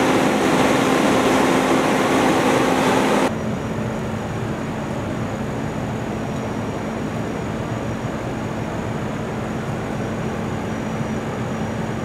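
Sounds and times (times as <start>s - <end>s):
trucks idling: 0.0s - 3.3s.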